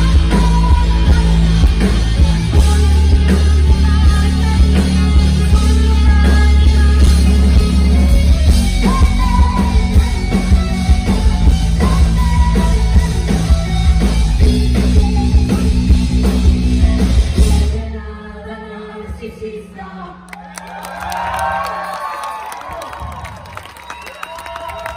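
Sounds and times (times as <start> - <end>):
electric guitar: 0.0 - 17.8
bass guitar: 0.0 - 18.0
drums: 0.0 - 18.4, 20.8 - 24.9.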